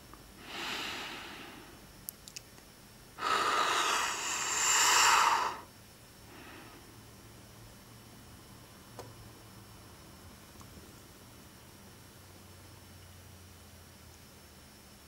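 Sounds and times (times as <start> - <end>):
heavy breathing and sighs: 0.4 - 1.8, 3.2 - 5.7.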